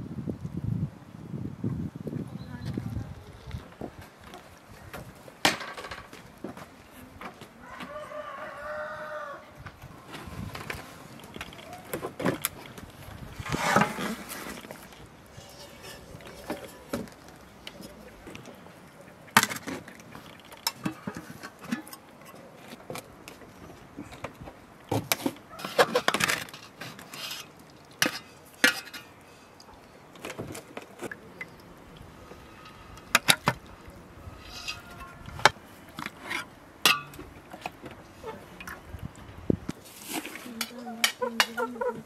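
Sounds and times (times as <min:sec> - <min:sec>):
metal utensils clinking on pot: 0:25.6 - 0:29.1, 0:36.0 - 0:37.2.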